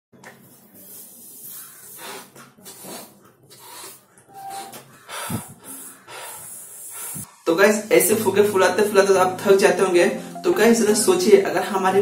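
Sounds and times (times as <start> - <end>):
quick inhalations: 0.4 - 7.4
breathy puffs into balloon: 0.8 - 7.4.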